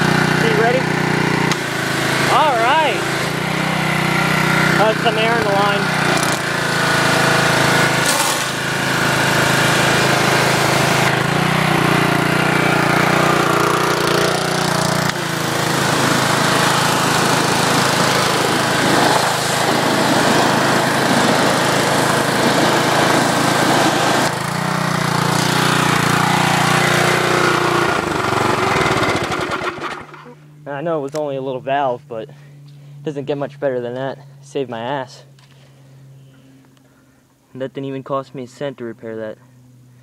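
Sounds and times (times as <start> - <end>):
pressure washer engine running: 0.0 - 30.6.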